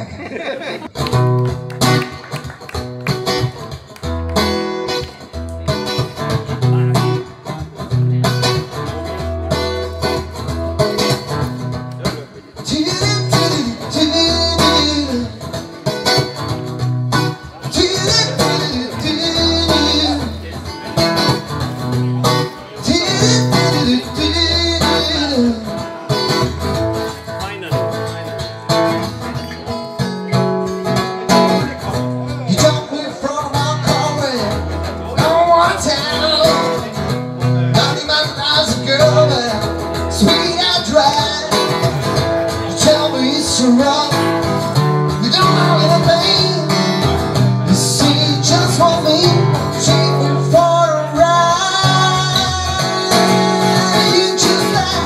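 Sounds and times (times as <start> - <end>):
acoustic guitar music: 0.0 - 55.0
person singing: 12.6 - 15.5, 17.5 - 20.5, 22.2 - 26.3, 45.1 - 55.0.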